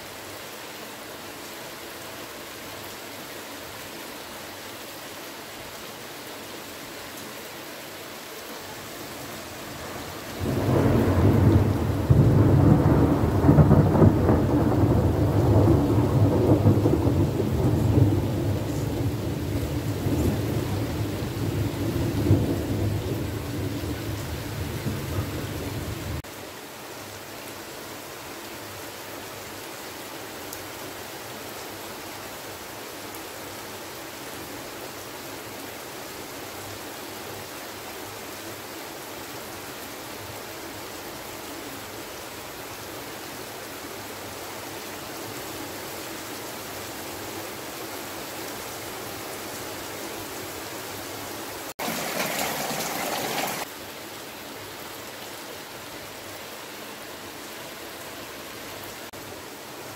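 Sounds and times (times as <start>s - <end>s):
heavy rain: 0.0s - 59.9s
thunder rumbling: 10.3s - 26.2s, 51.8s - 53.7s.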